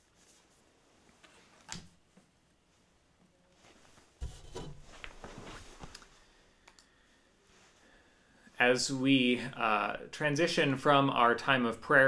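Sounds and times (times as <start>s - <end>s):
rustling and small knocks: 0.2s - 6.2s.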